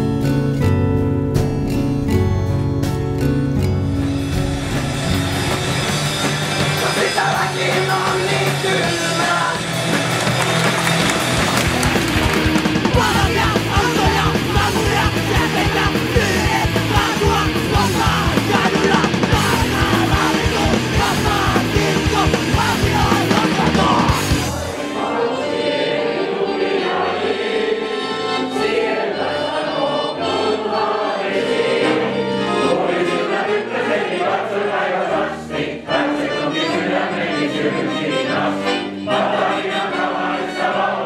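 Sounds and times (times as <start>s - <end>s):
soft music with sustained notes: 0.0s - 7.3s
live punk rock band: 4.1s - 24.9s.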